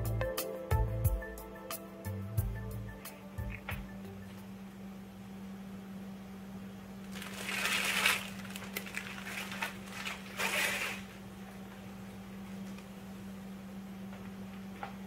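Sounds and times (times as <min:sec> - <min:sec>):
plastic wrapping crinkling: 0:07.0 - 0:11.2.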